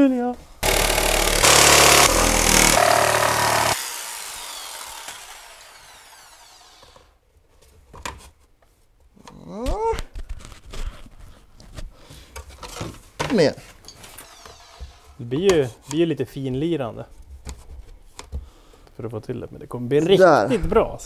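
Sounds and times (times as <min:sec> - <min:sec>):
electric power saw cutting: 0:00.6 - 0:07.1, 0:14.2 - 0:15.0
saw motor winding down: 0:00.6 - 0:07.1.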